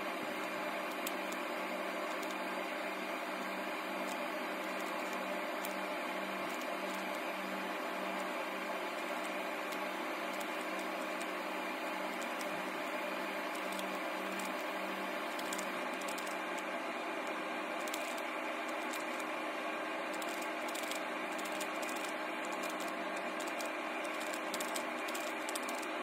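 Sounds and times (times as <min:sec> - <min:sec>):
plastic puzzle cube clicking: 0:20.1 - 0:25.9.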